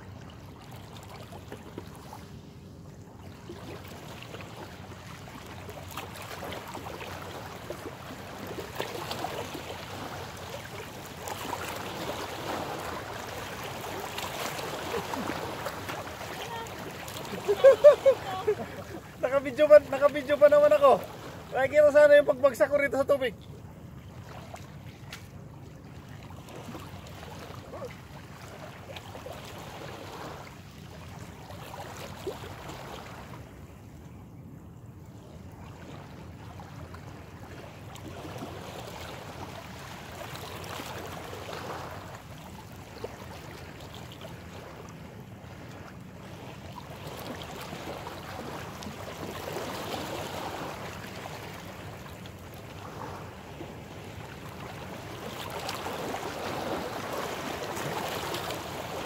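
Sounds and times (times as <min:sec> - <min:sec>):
small waves washing against rocks: 0:03.6 - 0:22.8, 0:45.7 - 0:59.0.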